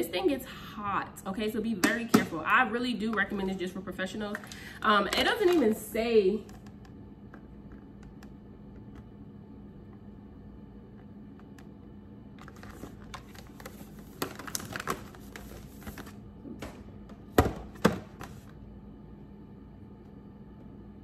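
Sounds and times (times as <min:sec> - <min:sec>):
plastic and cardboard packaging rustling: 0:12.4 - 0:16.2.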